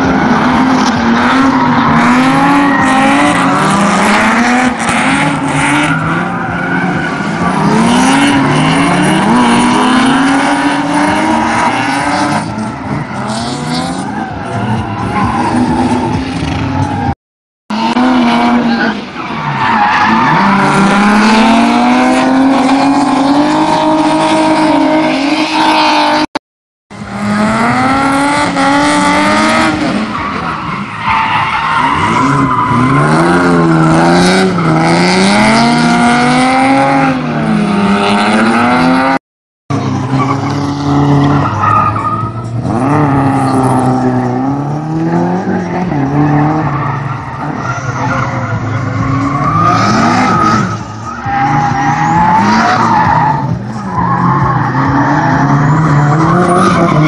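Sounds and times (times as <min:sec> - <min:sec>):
car engine revving: 0:00.0 - 0:57.0.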